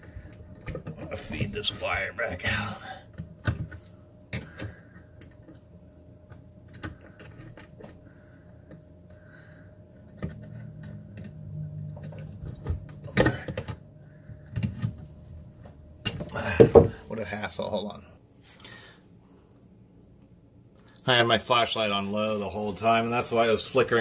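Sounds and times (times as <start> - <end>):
electrical wire clicking and rattling: 6.3 - 9.3.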